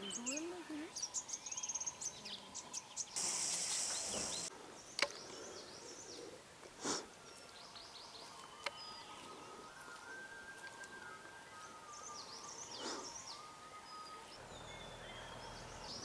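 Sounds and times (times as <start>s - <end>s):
birds chirping: 0.0s - 16.0s
loud high hiss: 3.2s - 4.5s.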